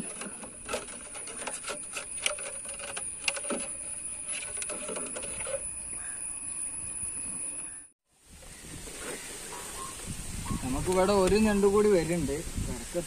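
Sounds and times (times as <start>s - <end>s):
steady high hiss: 5.8s - 13.0s.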